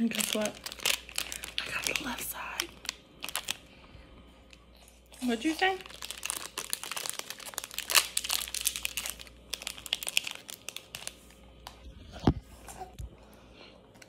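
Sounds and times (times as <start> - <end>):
plastic wrapper crinkling: 0.0 - 3.7, 4.4 - 11.8.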